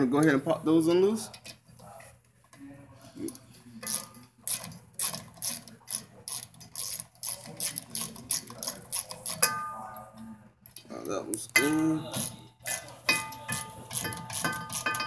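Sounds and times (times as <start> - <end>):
ratchet wrench clicking: 3.8 - 9.5.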